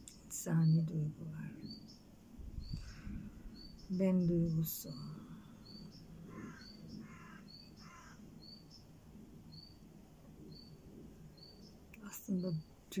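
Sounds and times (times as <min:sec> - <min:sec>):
small bird chirping: 0:00.0 - 0:08.9, 0:09.5 - 0:09.8, 0:10.4 - 0:13.0
harsh caws: 0:05.7 - 0:08.3.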